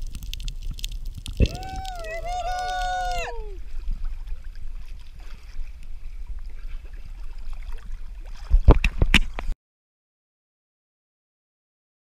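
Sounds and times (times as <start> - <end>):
wind buffeting microphone: 0.0 - 4.4
sea water sloshing: 0.0 - 9.6
loud knocks and splashes: 8.3 - 9.4.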